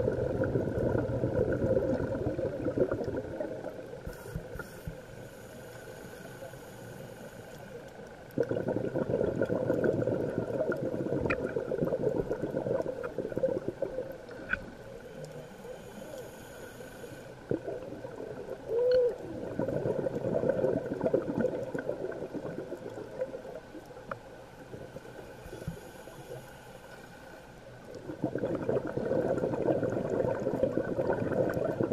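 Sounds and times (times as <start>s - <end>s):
diver's exhaled bubbles gurgling: 0.0s - 4.0s, 8.3s - 14.8s, 17.5s - 23.8s, 27.9s - 31.9s
faint clicks: 10.6s - 17.9s, 22.6s - 28.0s.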